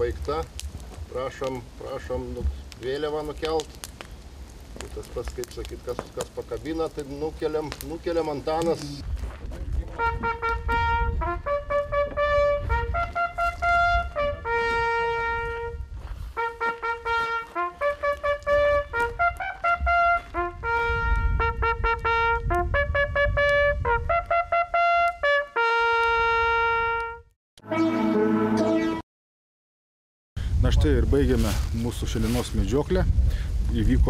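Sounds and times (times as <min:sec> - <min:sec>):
brass hunting horn call: 0:09.9 - 0:29.0.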